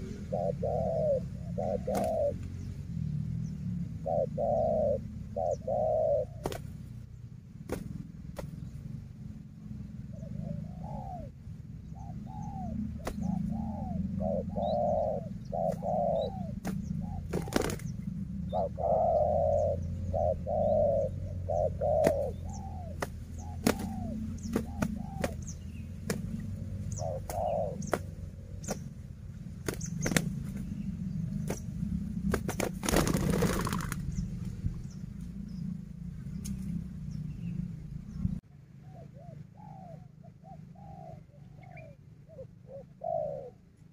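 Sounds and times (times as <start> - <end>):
doves cooing: 0.0 - 7.0, 9.8 - 35.6, 38.8 - 43.9
steady low hum: 0.0 - 43.9
wings flapping: 1.8 - 2.4, 6.4 - 6.9, 7.7 - 8.6, 13.0 - 13.5, 16.6 - 18.1, 22.0 - 22.4, 23.0 - 29.0, 29.6 - 30.7, 31.4 - 34.6.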